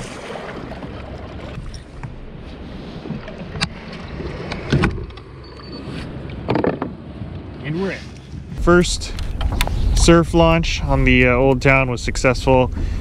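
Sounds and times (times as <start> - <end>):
water splashing against kayak: 0.0 - 8.6.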